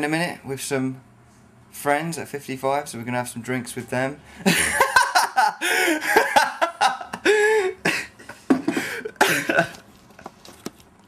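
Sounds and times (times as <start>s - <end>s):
man laughing hard: 4.4s - 9.8s.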